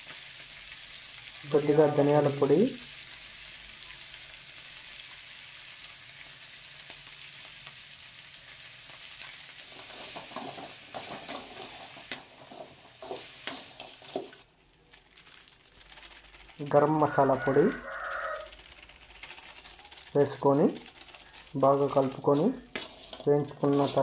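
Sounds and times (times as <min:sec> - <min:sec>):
crab sizzling in hot oil: 0:00.0 - 0:24.0
spatula scraping a pan: 0:09.6 - 0:14.4, 0:22.0 - 0:24.0.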